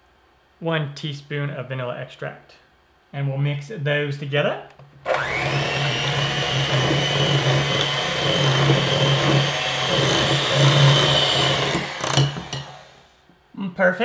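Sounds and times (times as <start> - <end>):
electric hand mixer running: 5.1 - 13.2.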